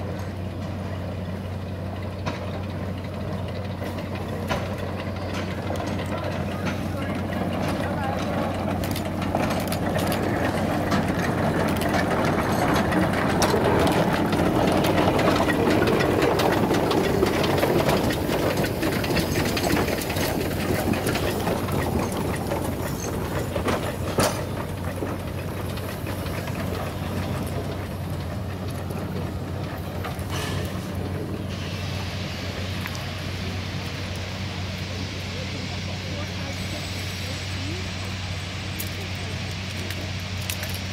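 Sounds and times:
steam locomotive exhaust beats: 0:00.0 - 0:40.9
running gear clatter: 0:03.5 - 0:31.5.

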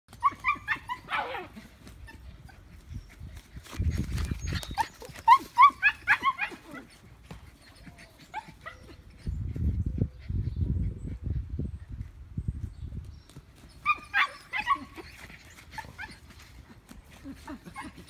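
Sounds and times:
puppies yapping: 0:00.1 - 0:09.4, 0:13.6 - 0:18.0.

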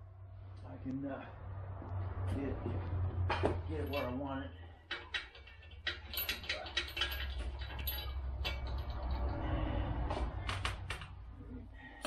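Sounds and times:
metal clinks and knocks: 0:03.2 - 0:11.2.

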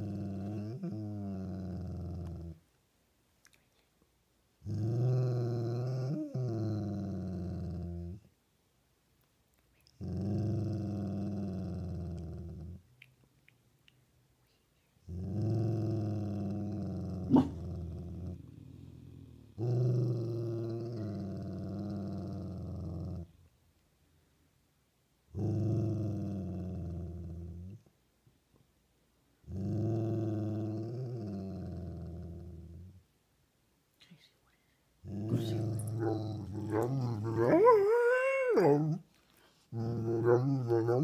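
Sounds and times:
dog growling: 0:00.0 - 0:02.6, 0:04.6 - 0:08.3, 0:10.0 - 0:12.8, 0:15.1 - 0:23.4, 0:25.3 - 0:27.8, 0:29.4 - 0:33.0, 0:35.0 - 0:41.0.

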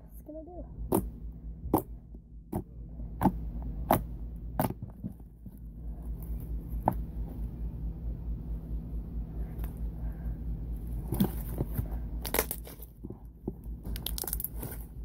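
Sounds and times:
low hum: 0:00.0 - 0:15.0
slime squishing: 0:10.8 - 0:15.0.

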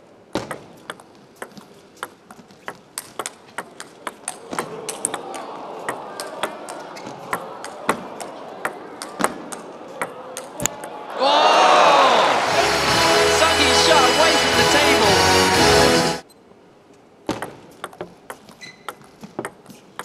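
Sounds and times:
table tennis ball clicks: 0:00.4 - 0:10.8, 0:17.3 - 0:20.0
murmur of crowd voices: 0:04.2 - 0:15.6.

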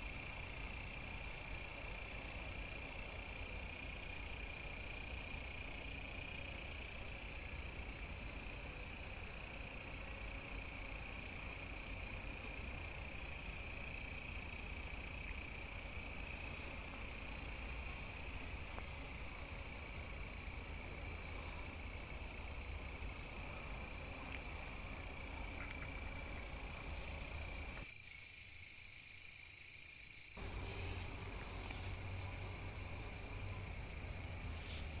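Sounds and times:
insects shrilling: 0:30.4 - 0:35.0.

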